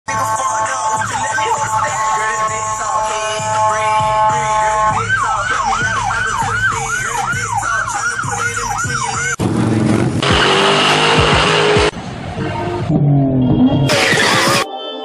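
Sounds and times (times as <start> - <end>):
siren yelping: 0.2 - 9.4, 12.7 - 14.7
loud rough noisy sound: 9.4 - 14.7.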